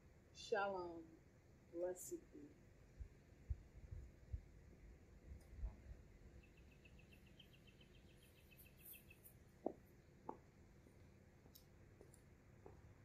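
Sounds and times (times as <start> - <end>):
faint bird trill: 6.4 - 9.4.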